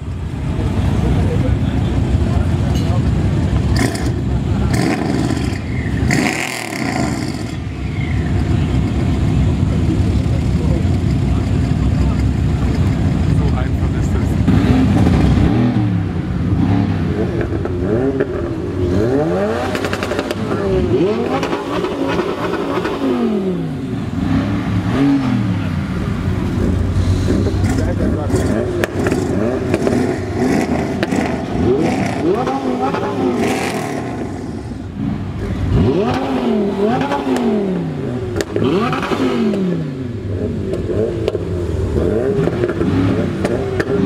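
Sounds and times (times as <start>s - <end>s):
car engine revving: 0.0s - 44.0s
exhaust pops: 26.5s - 33.1s, 38.3s - 39.7s.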